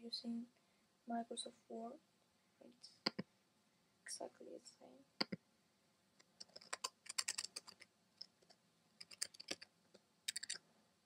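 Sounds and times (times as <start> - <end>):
keyboard typing: 6.4 - 9.6, 10.3 - 10.6.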